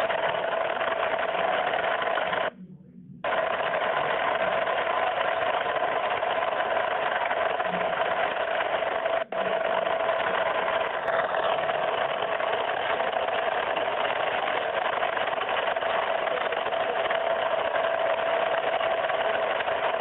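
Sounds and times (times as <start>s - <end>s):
boat engine running: 3.2s - 20.0s.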